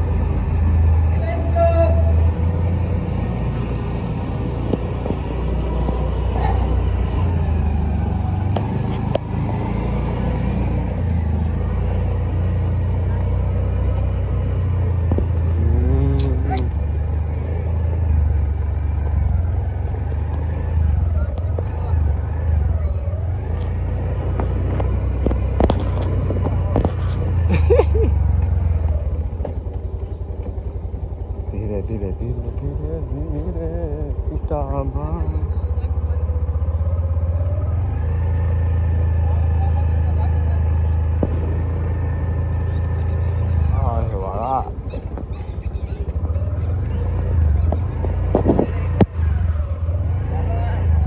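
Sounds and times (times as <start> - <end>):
motorcycle engine rumbling: 0.0 - 51.0
brief voice-like call: 15.6 - 16.8.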